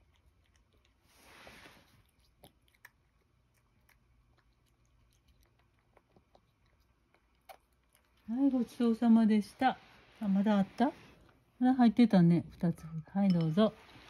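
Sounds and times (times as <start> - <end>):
cat chewing and licking: 0.0 - 8.7
soft rush of noise: 8.5 - 11.6.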